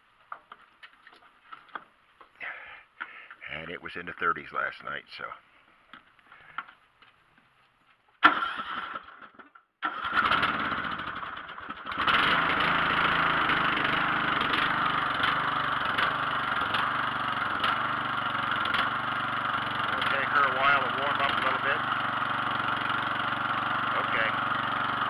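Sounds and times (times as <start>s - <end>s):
lawn tractor engine running: 8.2s - 25.0s
starter motor cranking engine: 8.2s - 25.0s.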